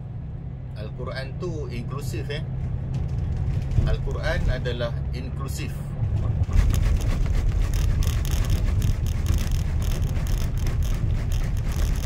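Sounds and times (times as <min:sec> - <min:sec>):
road rumble: 0:00.0 - 0:12.0
tyres thumping over rumble strips: 0:02.7 - 0:04.8, 0:06.0 - 0:12.0.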